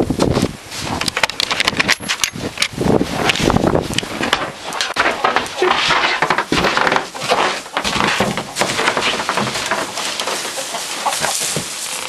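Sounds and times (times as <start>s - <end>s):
footsteps crunching on litter: 2.4s - 12.0s.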